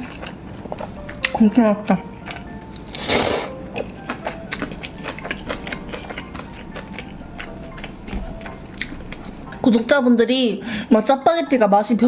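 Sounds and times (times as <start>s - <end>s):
wet chewing clicks: 0.0s - 9.5s.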